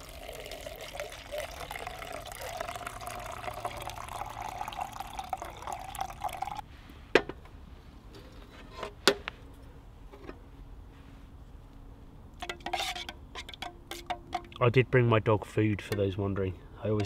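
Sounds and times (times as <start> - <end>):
water poured into a mug: 0.0 - 6.6.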